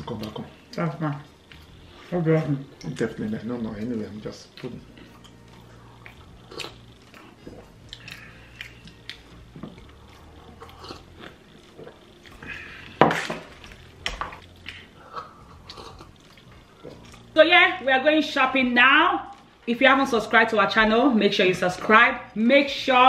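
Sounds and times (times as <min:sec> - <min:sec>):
chewing and mouth smacks: 0:04.4 - 0:17.3.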